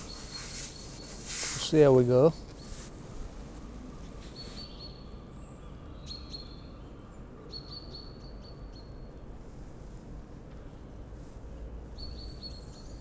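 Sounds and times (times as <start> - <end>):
songbird whistling calls: 0.0 - 1.3, 4.4 - 5.1, 12.0 - 13.0.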